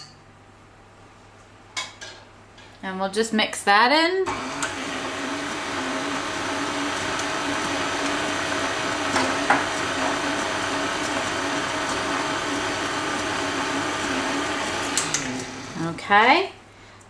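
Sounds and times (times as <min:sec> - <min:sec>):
stand mixer motor humming: 0:04.3 - 0:16.0.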